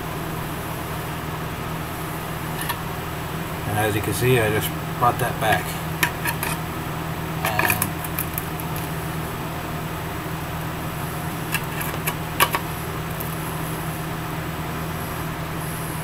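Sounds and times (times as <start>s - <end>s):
low machine hum: 0.0s - 16.0s
metallic clicks and clinks: 7.4s - 8.8s.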